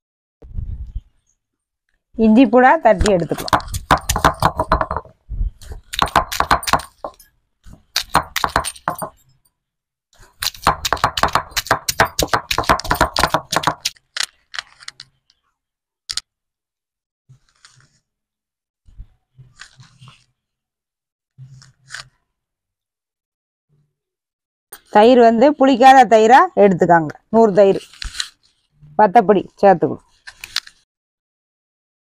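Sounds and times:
stone grinding on stone: 3.3 - 9.2, 10.2 - 14.0.

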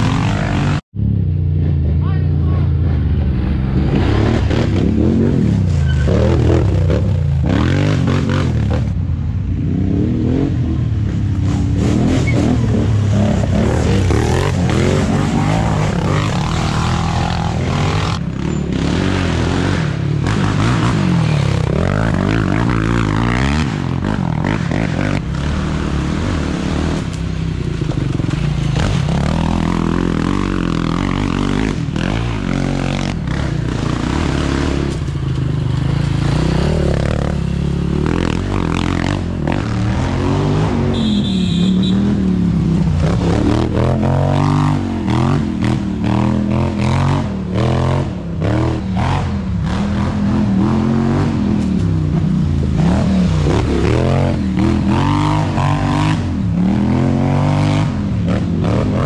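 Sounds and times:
quad engines revving: 0.0 - 0.8, 1.7 - 9.0, 9.6 - 59.0.

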